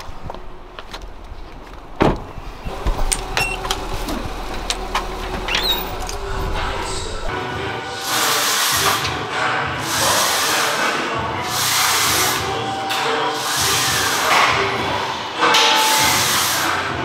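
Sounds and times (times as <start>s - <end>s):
leg machine rushing hiss: 7.9s - 15.2s, 15.8s - 17.0s.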